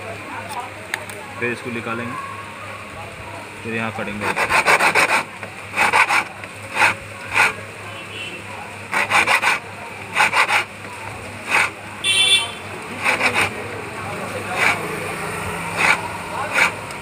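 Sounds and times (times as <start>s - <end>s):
file rasping on metal key: 4.2s - 7.6s, 8.9s - 10.7s, 11.4s - 11.8s, 13.0s - 13.6s, 14.5s - 14.8s, 15.7s - 17.0s.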